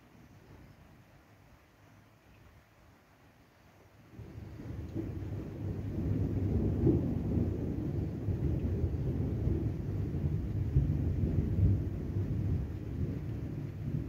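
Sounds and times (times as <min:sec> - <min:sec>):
thunder rumbling: 0:04.1 - 0:14.0.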